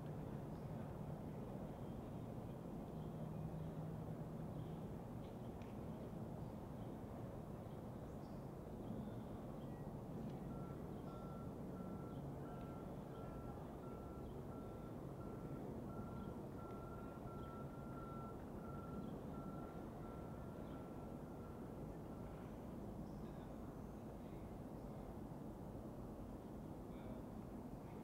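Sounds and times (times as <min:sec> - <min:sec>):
vehicle backup alarm beeping: 0:10.4 - 0:22.4.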